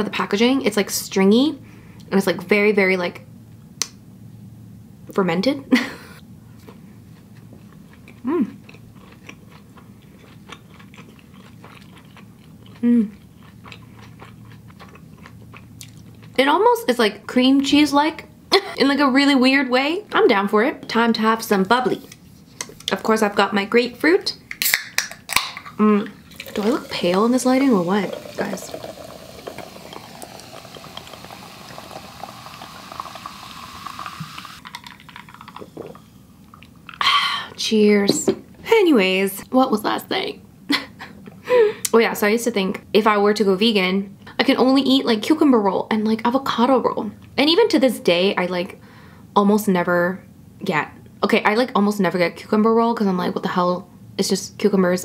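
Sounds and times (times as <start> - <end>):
person humming mm: 8.2 - 8.6, 12.8 - 13.2
fizzing with tiny pops: 26.3 - 35.7
sparkling water pouring into glass: 26.3 - 35.7
wet chewing mouth clicks: 34.6 - 37.0.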